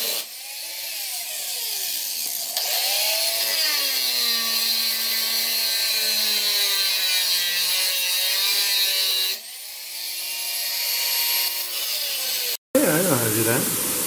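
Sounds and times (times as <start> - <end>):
angle grinder cutting steel: 0.0 - 12.6.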